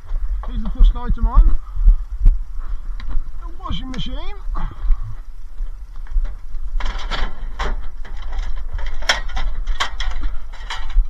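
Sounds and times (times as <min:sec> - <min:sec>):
low rumble: 0:00.0 - 0:11.0
sack truck rattling and clanking: 0:06.8 - 0:11.0.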